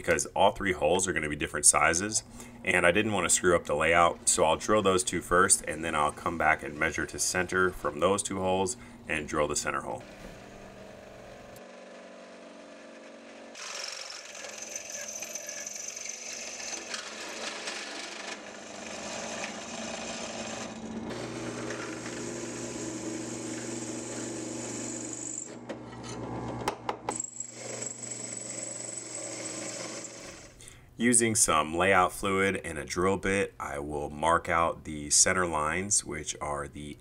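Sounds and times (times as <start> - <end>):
drill bit grinding steel: 10.0 - 25.6, 27.1 - 30.6
drill press motor hum: 10.0 - 30.6.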